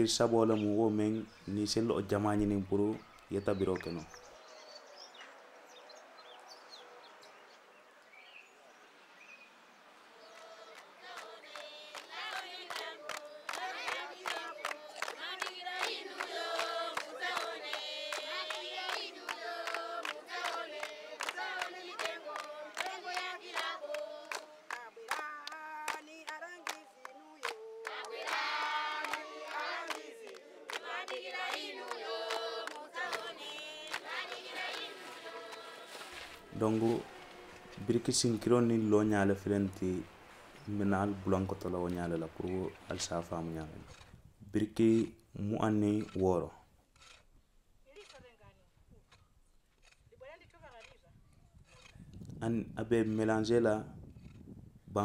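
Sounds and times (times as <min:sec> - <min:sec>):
group singing: 0:10.1 - 0:38.4.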